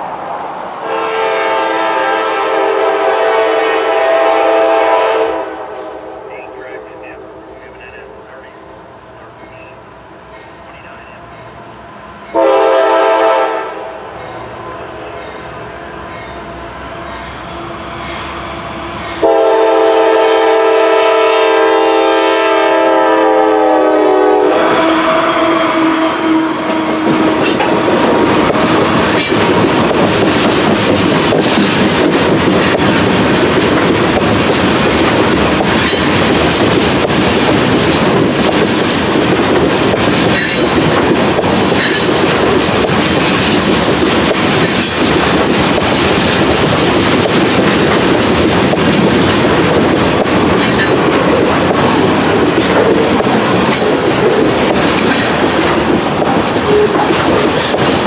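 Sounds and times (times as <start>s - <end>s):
locomotive air horn blast: 0.8s - 8.3s, 12.3s - 14.1s, 19.2s - 27.6s, 56.7s - 57.0s
train wheels clattering over rails: 26.6s - 58.0s.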